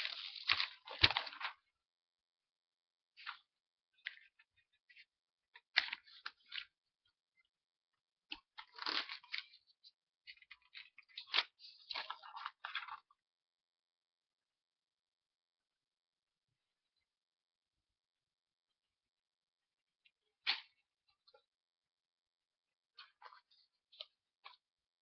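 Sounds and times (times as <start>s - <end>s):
paper rustling and crinkling: 0.0s - 1.7s, 3.2s - 6.9s, 8.3s - 13.2s.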